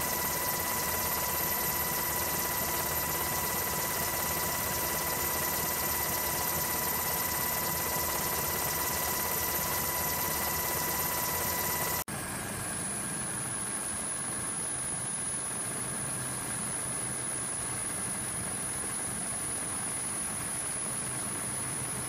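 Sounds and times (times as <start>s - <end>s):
aircraft engine drone: 0.0s - 15.6s.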